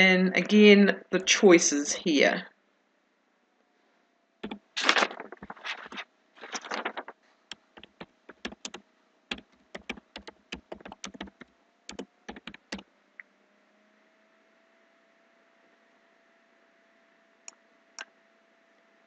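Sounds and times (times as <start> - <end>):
computer keyboard typing: 4.4 - 12.8.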